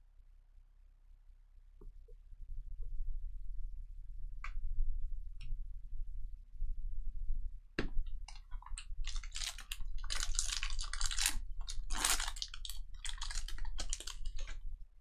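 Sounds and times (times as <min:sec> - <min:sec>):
card pack wrappers crinkling: 0:08.6 - 0:14.7.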